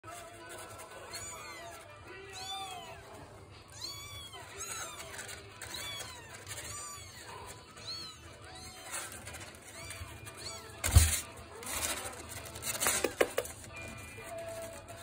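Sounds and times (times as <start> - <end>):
kittens mewing: 0.4 - 13.6.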